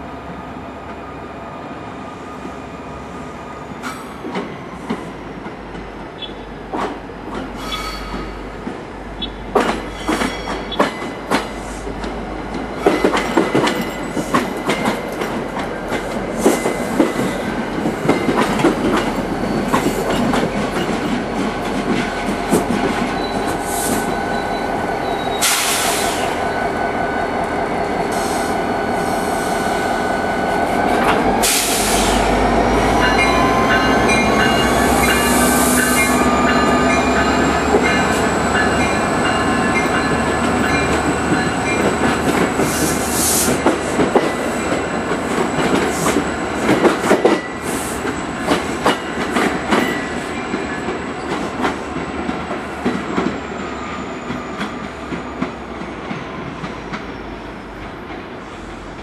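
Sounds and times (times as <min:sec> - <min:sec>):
diesel locomotive engine working: 0:00.0 - 0:59.0
hiss bursts: 0:25.4 - 0:26.4, 0:28.1 - 0:29.8, 0:31.4 - 0:32.3, 0:42.6 - 0:43.6.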